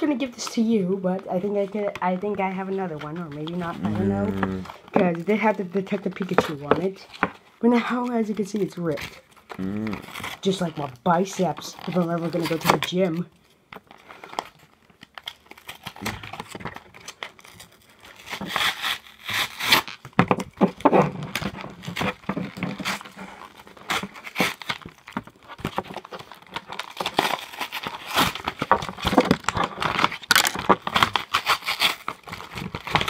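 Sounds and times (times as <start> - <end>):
plastic packaging crinkling and tearing: 0.0 - 33.0.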